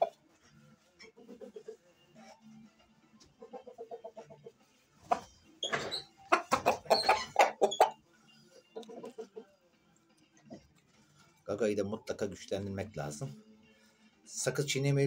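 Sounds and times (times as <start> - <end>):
rooster clucking: 1.1 - 1.8, 3.4 - 8.0, 8.8 - 9.5.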